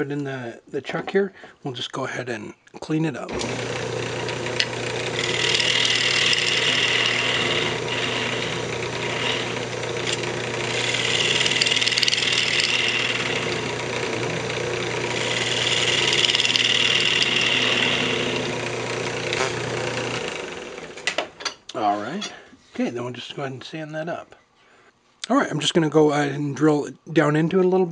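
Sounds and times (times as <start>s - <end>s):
lathe motor hum: 3.3s - 21.2s
gouge cutting hiss: 5.2s - 13.7s, 15.1s - 18.4s.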